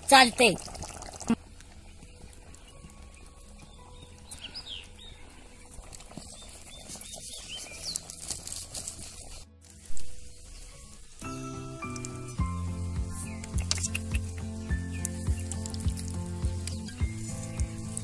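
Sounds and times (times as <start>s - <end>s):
faint scattered clicks: 11.8s - 12.4s, 13.4s - 16.9s.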